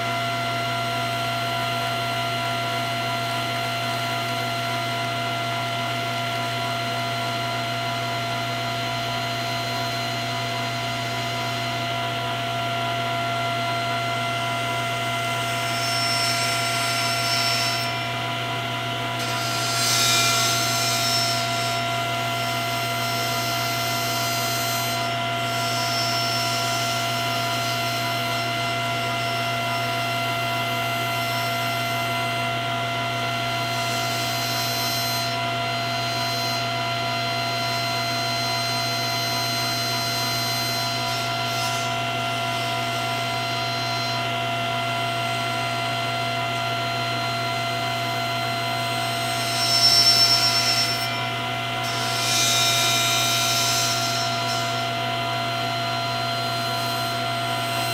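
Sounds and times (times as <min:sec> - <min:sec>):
table saw humming: 0:00.0 - 0:57.9
saw blade cutting wood: 0:15.0 - 0:32.5, 0:33.6 - 0:57.9.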